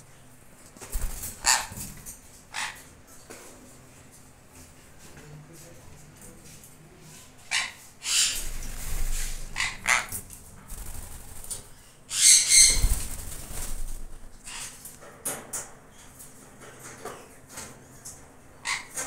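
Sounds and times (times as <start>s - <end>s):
birds flapping wings: 0.8s - 2.1s, 8.4s - 14.8s
shrill bird squawk: 12.1s - 12.9s.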